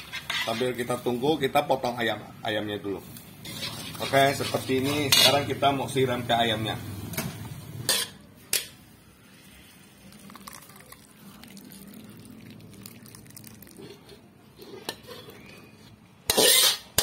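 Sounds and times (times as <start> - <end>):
spoon scraping across wok: 0.0 - 1.2, 3.4 - 5.7, 7.8 - 8.7, 13.6 - 17.0.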